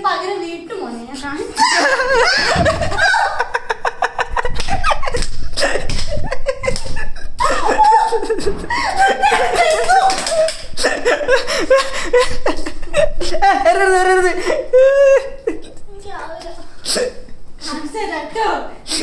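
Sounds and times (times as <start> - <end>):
woman laughing hard: 1.6 - 15.6.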